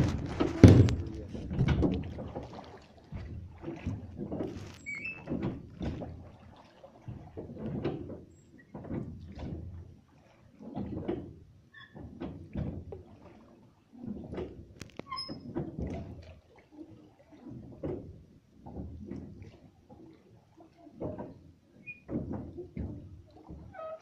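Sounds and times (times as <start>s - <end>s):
knocks against boat hull: 0.0s - 2.4s
water moving: 0.0s - 24.0s
short squeaks: 4.6s - 5.3s, 14.9s - 15.5s, 21.8s - 22.1s, 23.7s - 24.0s.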